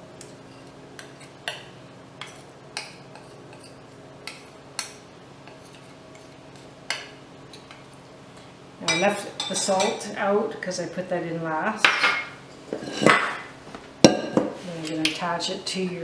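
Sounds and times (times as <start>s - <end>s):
utensils stirring in metal bowl: 12.5s - 13.4s.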